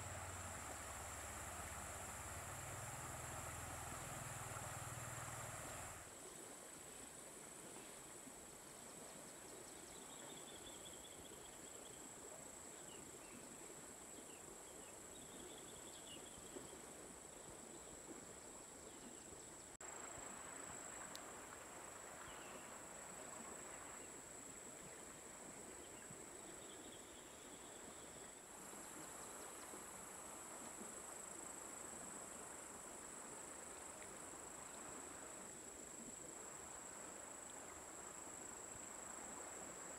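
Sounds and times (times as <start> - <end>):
insects chirring: 0.0 - 6.1.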